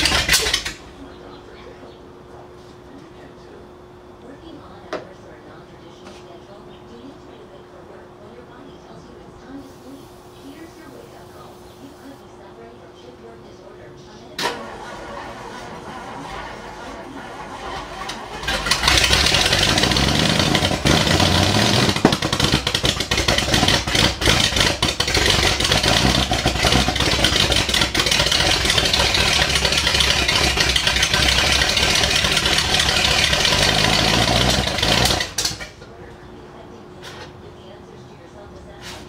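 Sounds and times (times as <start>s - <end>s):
car engine running rough: 0.0s - 0.9s, 14.4s - 35.8s.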